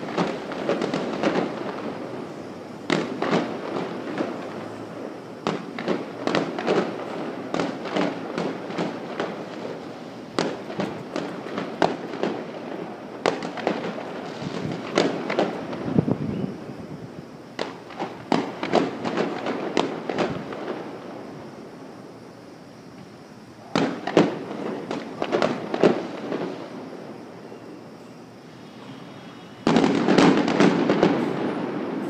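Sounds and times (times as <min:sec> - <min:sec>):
fireworks bangs and pops: 0:00.0 - 0:21.6, 0:22.9 - 0:27.0, 0:28.6 - 0:32.0
fireworks rumbling: 0:00.0 - 0:32.0.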